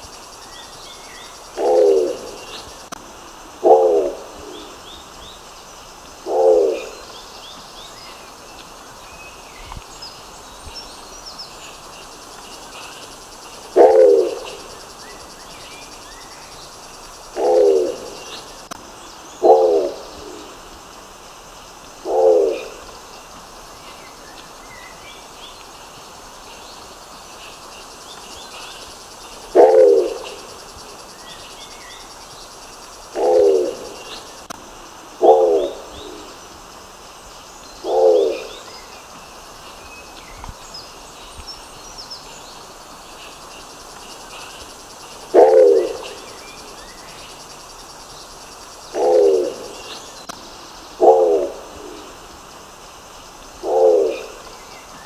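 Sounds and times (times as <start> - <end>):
small birds chirping: 0.0 - 34.6, 35.2 - 55.0
pigeon calling low: 1.6 - 2.5, 13.7 - 14.7, 17.3 - 18.4, 19.4 - 20.2, 29.5 - 30.4, 33.1 - 34.0, 45.3 - 46.3, 48.9 - 49.8, 51.0 - 51.8.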